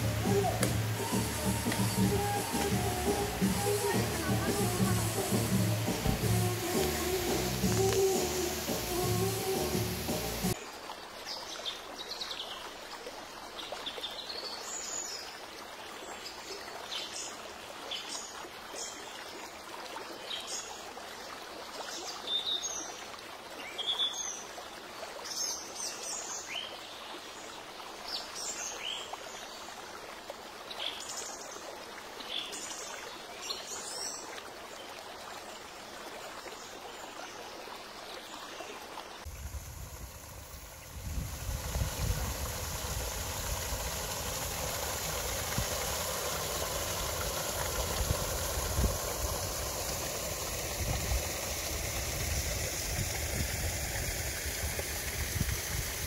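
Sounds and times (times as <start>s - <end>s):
running water: 0.0s - 56.0s
wind rumble on microphone: 39.3s - 44.2s, 50.6s - 56.0s.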